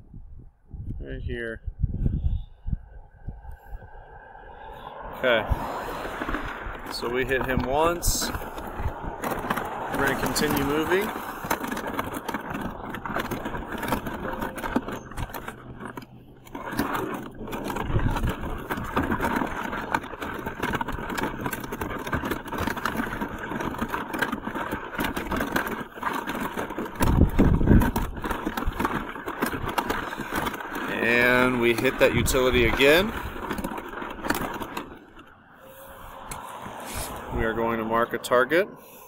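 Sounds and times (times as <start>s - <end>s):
cart wheels rolling over pavement: 3.1s - 39.0s.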